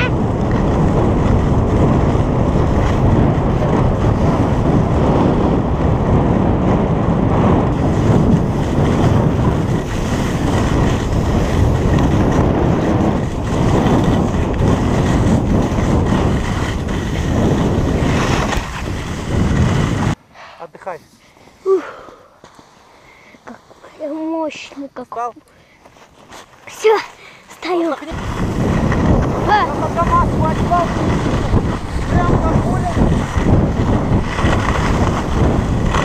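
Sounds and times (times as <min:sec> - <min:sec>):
wind buffeting microphone: 0:00.0 - 0:20.2, 0:26.7 - 0:36.0
skis scraping on packed snow: 0:07.7 - 0:20.2, 0:22.4 - 0:24.7, 0:25.7 - 0:36.0.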